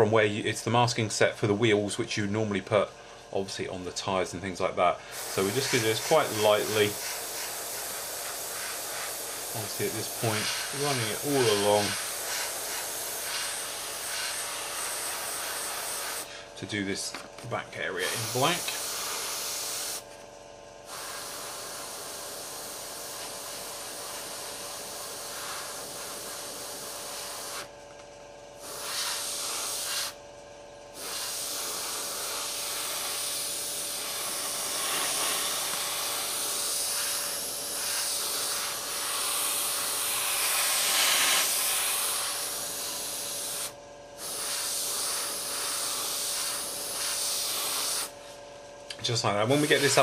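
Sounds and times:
airbrush spraying hiss: 5.1s - 16.4s, 17.9s - 20.1s, 20.8s - 27.7s, 28.6s - 30.2s, 30.9s - 48.2s, 49.4s - 50.0s.

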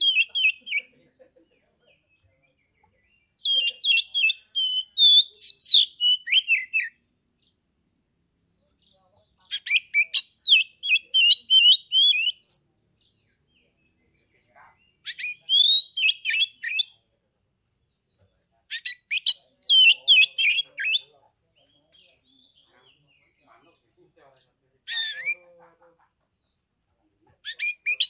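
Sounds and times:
bird singing whistled phrases: 0.0s - 0.9s, 3.4s - 7.0s, 9.5s - 12.7s, 15.1s - 16.9s, 18.7s - 21.0s, 27.4s - 28.0s.

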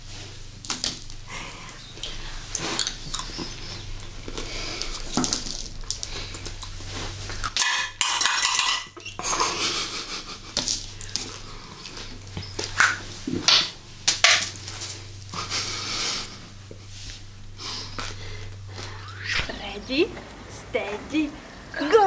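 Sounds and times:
candy eggs clattering on a dish: 2.5s - 3.8s, 4.4s - 9.8s.

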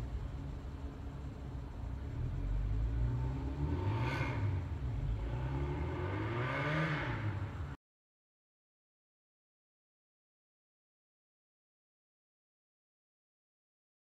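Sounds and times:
tram electrical hum: 0.0s - 6.2s.

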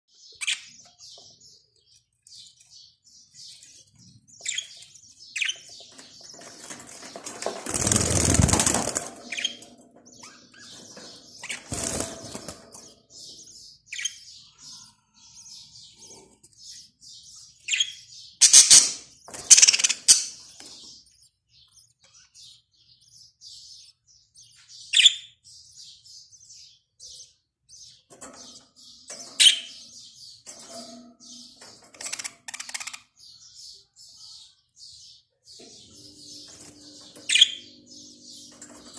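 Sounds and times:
budgerigars chirping: 0.2s - 1.6s, 2.4s - 6.6s, 16.6s - 21.0s, 35.0s - 38.9s.

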